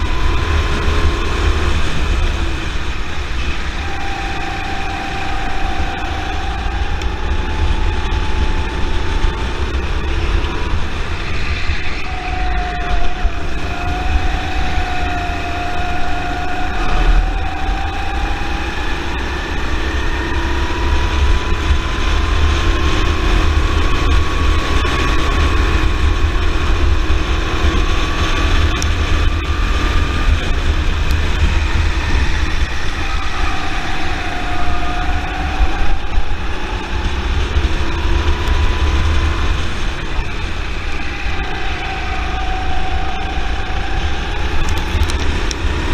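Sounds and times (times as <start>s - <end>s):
kart engine running: 0.0s - 45.9s
wind rumble on microphone: 0.0s - 45.9s.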